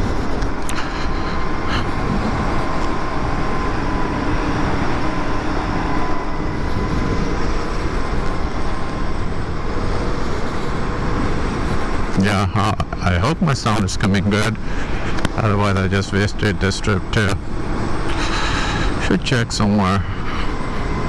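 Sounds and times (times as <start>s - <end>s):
wind buffeting microphone: 0.0s - 15.4s
tyre noise on road: 0.0s - 15.7s
faint motor whine: 0.0s - 21.0s.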